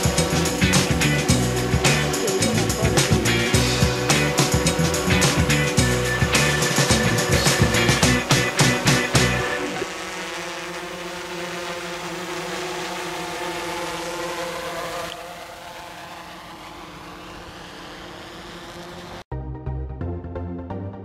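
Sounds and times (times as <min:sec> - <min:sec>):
drone rotors whirring: 0:00.0 - 0:19.3.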